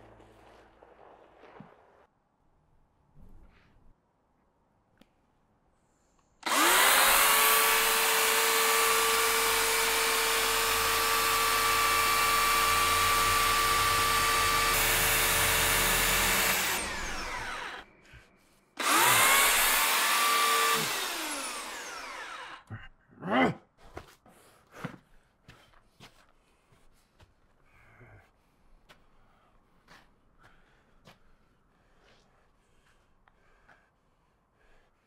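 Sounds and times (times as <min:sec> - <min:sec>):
chainsaw revving and winding down: 0:06.4 - 0:17.9, 0:18.8 - 0:22.7.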